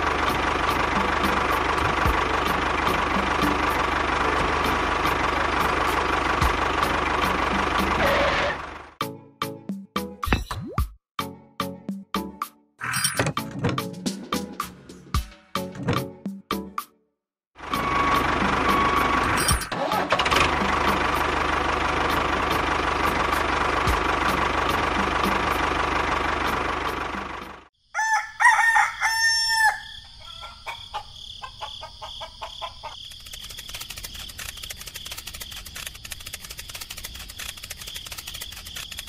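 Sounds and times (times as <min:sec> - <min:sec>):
rooster crowing: 0:27.8 - 0:32.9.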